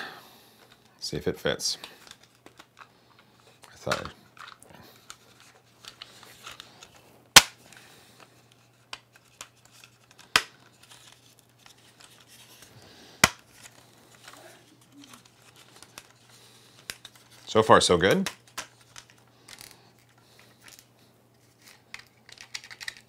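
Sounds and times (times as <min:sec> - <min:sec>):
plastic parts clicking together: 0:13.2 - 0:17.5, 0:18.2 - 0:20.9, 0:21.6 - 0:23.0.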